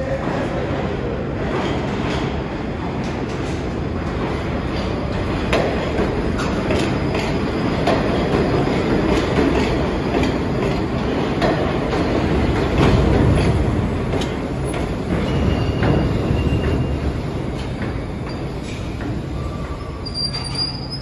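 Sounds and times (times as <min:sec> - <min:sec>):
subway train wheels clacking: 0:00.0 - 0:21.0
train rumble: 0:00.0 - 0:21.0
wheel squeal: 0:15.1 - 0:17.2, 0:19.3 - 0:21.0.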